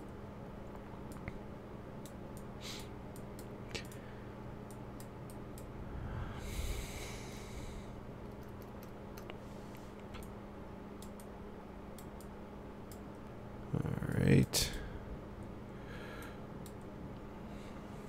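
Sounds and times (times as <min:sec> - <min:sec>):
low steady hum: 0:00.0 - 0:18.0
faint computer mouse clicks: 0:11.0 - 0:11.3, 0:16.2 - 0:16.9.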